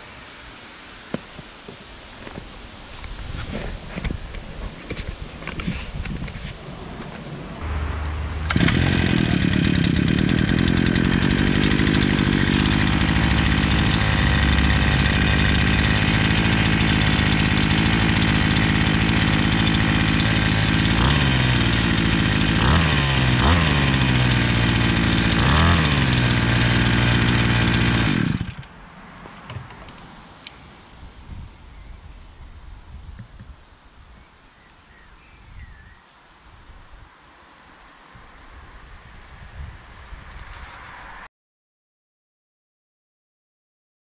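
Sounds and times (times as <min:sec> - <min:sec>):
brushcutter engine running: 0:07.6 - 0:28.8.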